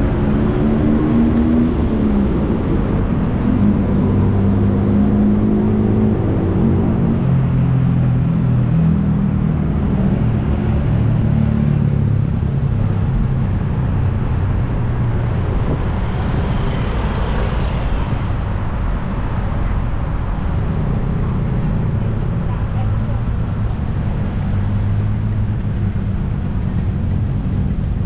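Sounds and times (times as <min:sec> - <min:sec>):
car and motorbike engines: 0:00.0 - 0:28.0
steady low traffic rumble: 0:00.0 - 0:28.0.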